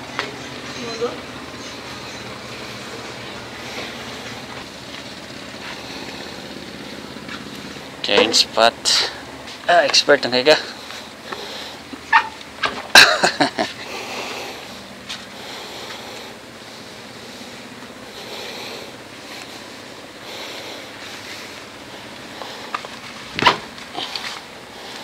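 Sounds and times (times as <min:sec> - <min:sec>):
wind: 0:00.0 - 0:25.0.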